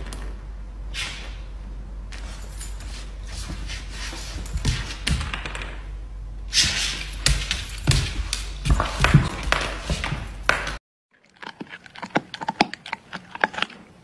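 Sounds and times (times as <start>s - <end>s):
low hum and hiss: 0.0s - 10.6s.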